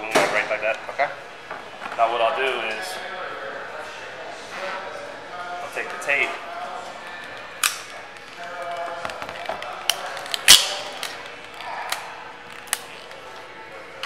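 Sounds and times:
adhesive tape crackling and snapping: 7.1 - 13.5.

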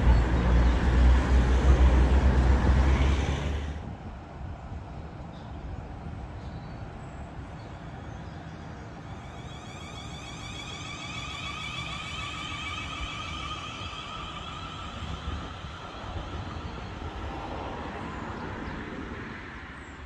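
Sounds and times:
electric train motor whine: 0.0 - 3.9, 7.9 - 18.1
train rumble: 0.0 - 20.0.

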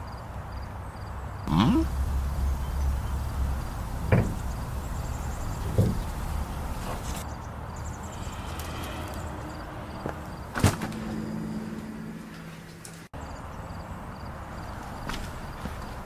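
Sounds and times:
heavy thuds: 1.9 - 7.2
low rumble: 1.9 - 7.2.

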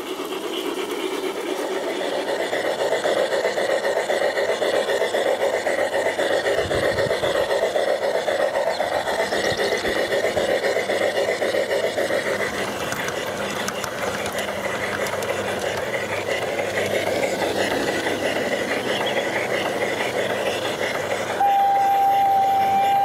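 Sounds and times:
wheels rattling on rails: 0.0 - 23.0
whirring electric motor and gears: 4.4 - 23.0
faint high whine: 21.4 - 23.0.

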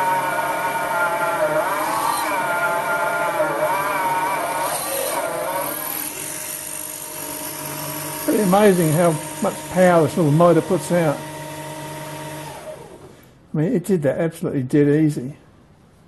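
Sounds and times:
electric drill motor whining: 0.0 - 13.3.

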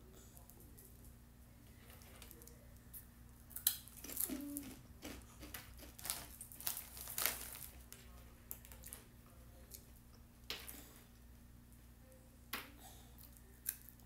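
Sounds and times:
foil snack bag crinkling: 3.8 - 9.0.

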